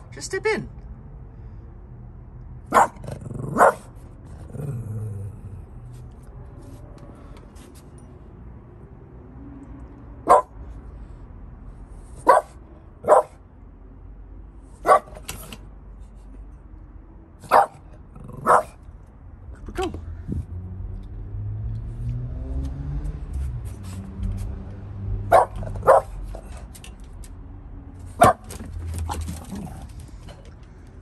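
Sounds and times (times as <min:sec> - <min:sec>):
dog barking: 0:02.7 - 0:03.9, 0:10.2 - 0:10.6, 0:12.2 - 0:13.4, 0:14.8 - 0:15.2, 0:17.4 - 0:18.8, 0:25.3 - 0:26.2, 0:28.2 - 0:28.5.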